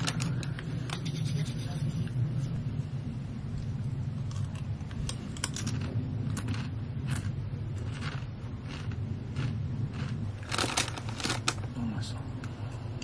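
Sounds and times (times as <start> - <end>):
steady low hum: 0.0 - 13.0
person crunching snack chips: 4.2 - 11.6.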